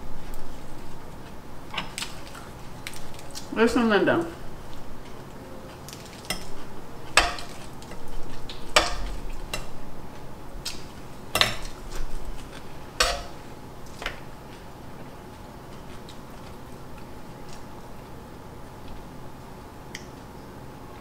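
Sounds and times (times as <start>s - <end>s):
metal tongs clinking on griddle: 11.3s - 11.8s, 13.0s - 13.4s.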